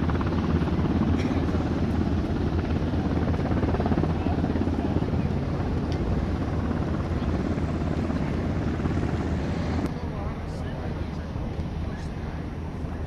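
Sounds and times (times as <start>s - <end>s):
propeller aircraft engine rumbling: 0.0s - 13.0s.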